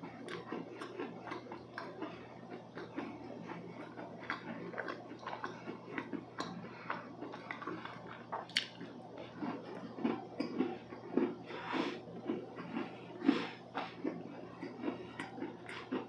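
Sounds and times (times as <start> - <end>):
close chewing of cookie: 0.0 - 16.0
wet mouth clicks: 8.3 - 8.8.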